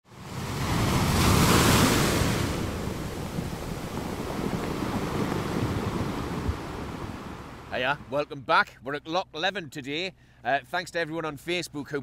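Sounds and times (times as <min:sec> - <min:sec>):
waves washing: 0:00.1 - 0:08.3
wind noise: 0:00.2 - 0:08.1.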